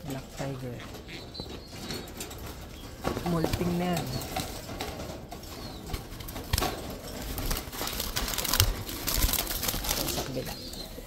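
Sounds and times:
pigeon wing flaps and rustling: 0:03.0 - 0:10.8.

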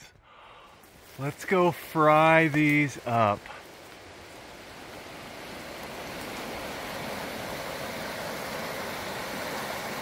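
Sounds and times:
creek rushing over rocks: 0:00.7 - 0:10.0.

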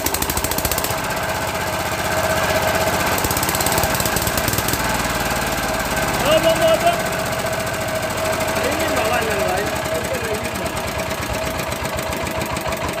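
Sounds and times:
diesel engine knocking: 0:00.0 - 0:13.0.

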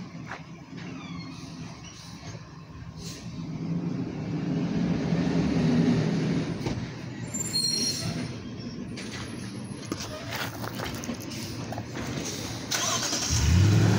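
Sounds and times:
large vehicle engine rumbling: 0:00.0 - 0:13.9
high brake squeal: 0:00.8 - 0:02.4, 0:07.1 - 0:10.3.

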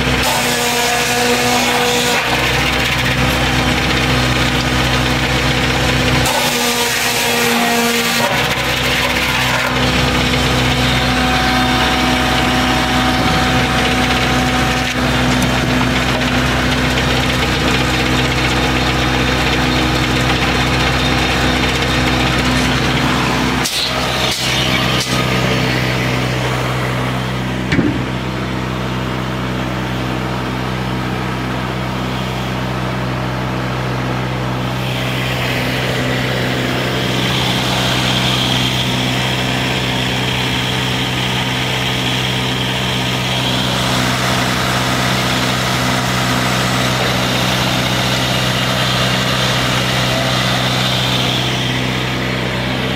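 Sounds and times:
sawmill power unit droning: 0:00.0 - 0:52.9
sharp knocks: 0:27.7 - 0:28.2.

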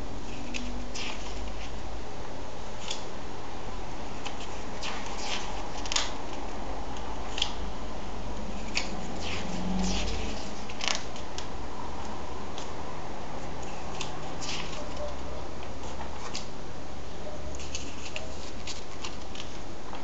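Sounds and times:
comic book pages turning: 0:08.6 - 0:11.4.

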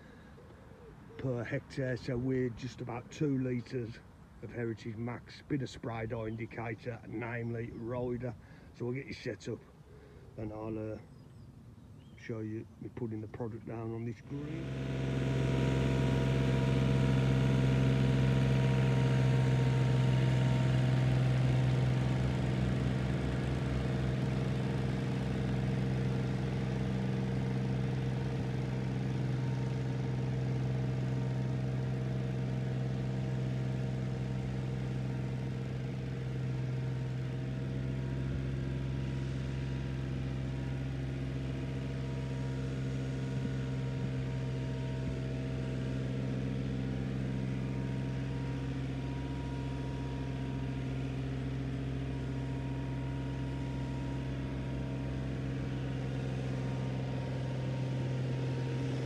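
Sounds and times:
tractor diesel engine running: 0:12.2 - 0:59.0.

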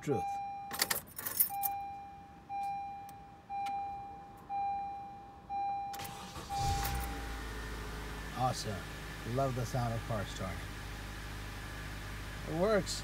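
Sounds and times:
dashboard warning chime: 0:00.0 - 0:07.2
car engine cranking and idling: 0:05.5 - 0:13.0.

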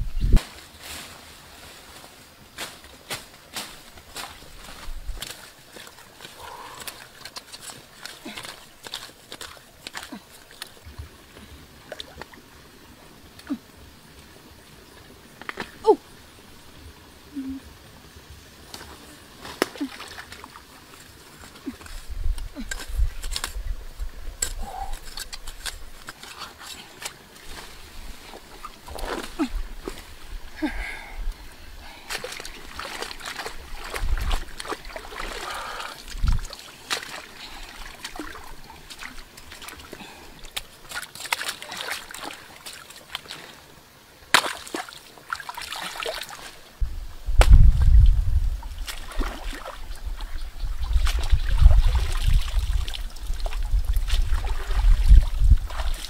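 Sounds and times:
rustles and snaps of plants: 0:00.3 - 0:11.1, 0:18.6 - 0:30.3, 0:47.3 - 0:48.1
water splashing and sloshing: 0:00.4 - 0:30.6, 0:31.8 - 0:46.8, 0:47.4 - 0:56.0.

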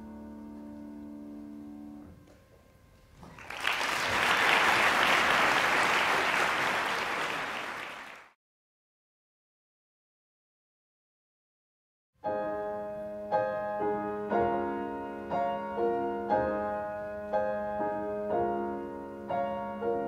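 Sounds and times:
audience applause: 0:03.2 - 0:08.4.

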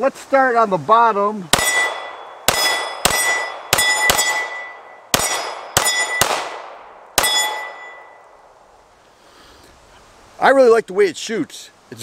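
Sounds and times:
pistol shots: 0:01.5 - 0:08.0
steel target clanging: 0:01.6 - 0:06.4, 0:07.2 - 0:08.2.

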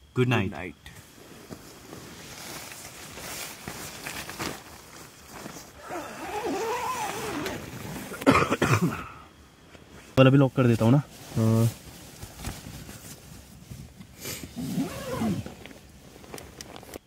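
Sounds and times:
tent fabric rustling: 0:01.0 - 0:08.3, 0:09.8 - 0:17.0
zipper closing: 0:05.7 - 0:08.3, 0:14.4 - 0:15.7.

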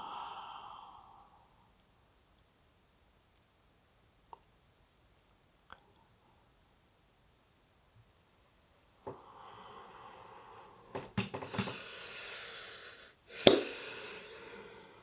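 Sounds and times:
man breathing heavily: 0:09.1 - 0:15.0.

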